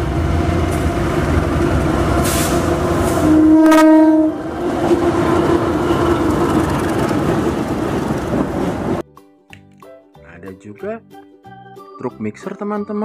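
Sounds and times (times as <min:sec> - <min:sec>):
train engine and wheels rumbling: 0:00.0 - 0:09.0
train horn blast: 0:02.1 - 0:06.4.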